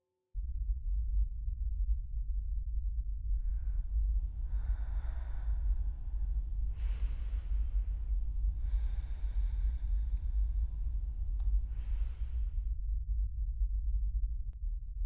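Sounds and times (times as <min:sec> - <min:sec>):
steady low rumble: 0:00.4 - 0:15.0
person breathing slowly: 0:03.4 - 0:12.8.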